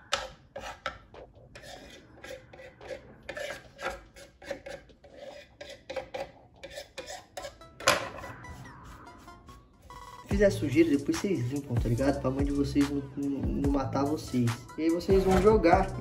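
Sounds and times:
knife scraping a candle: 0.0 - 8.3.

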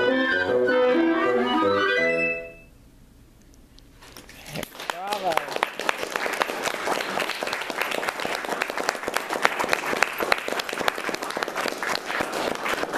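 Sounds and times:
audience applauding: 4.4 - 12.9.

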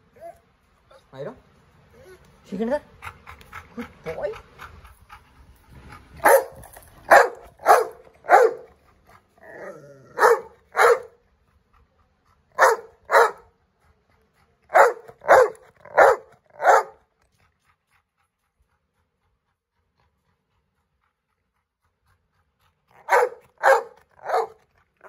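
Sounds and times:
dog whining: 0.1 - 1.1, 9.4 - 11.1
dog barking: 6.2 - 8.7, 10.1 - 11.2, 12.6 - 13.4, 14.7 - 17.0, 23.0 - 24.6.

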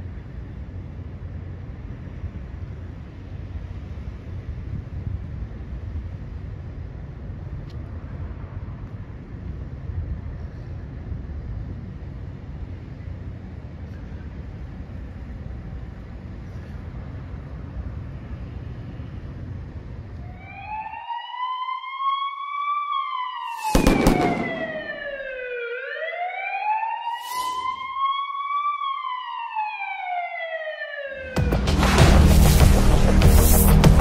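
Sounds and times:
street and traffic rumble: 0.0 - 34.0
police siren wailing: 20.2 - 31.5
loud music with a boom: 31.4 - 34.0.

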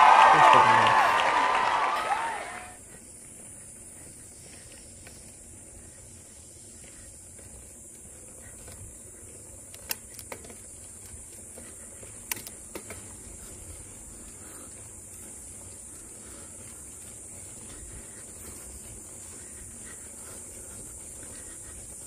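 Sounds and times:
bicycle riding rumble and hiss: 0.0 - 22.0
sharp clicks: 9.7 - 11.1, 12.2 - 13.0.

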